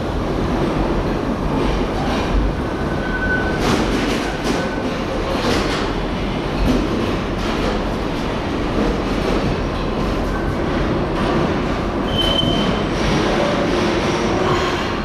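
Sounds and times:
railway rumble and clatter: 0.0 - 15.0
brief high squeal: 12.1 - 12.8.

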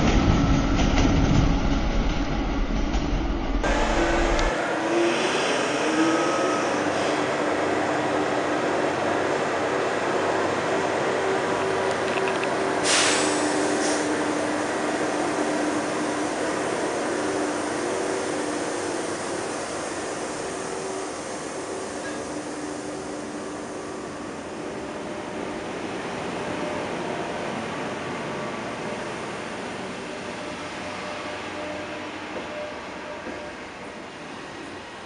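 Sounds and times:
train traction equipment humming: 0.0 - 35.0
short hiss: 12.8 - 14.0.

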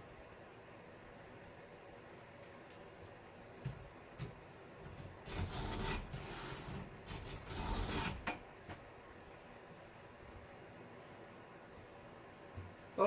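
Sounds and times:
file scraping chainsaw chain: 5.3 - 8.3.

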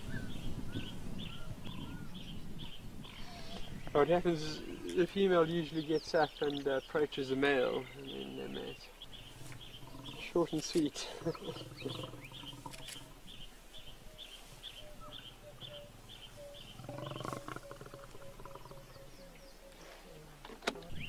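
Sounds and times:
lions growling: 3.1 - 5.2, 7.8 - 13.5, 14.2 - 19.9.

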